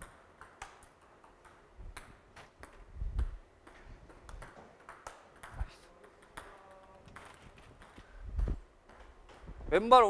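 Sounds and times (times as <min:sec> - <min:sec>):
table tennis ball clicking: 0:00.0 - 0:08.0.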